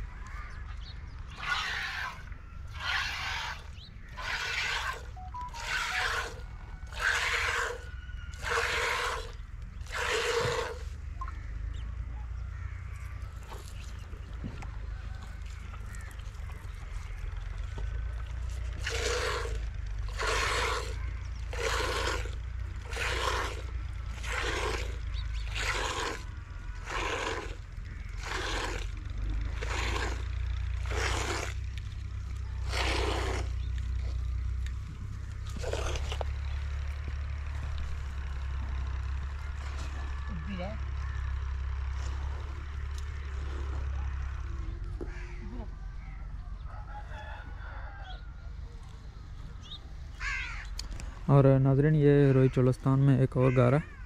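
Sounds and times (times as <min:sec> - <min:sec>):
low rumble: 0:07.6 - 0:52.4
milk squirting into metal pail: 0:18.8 - 0:19.5.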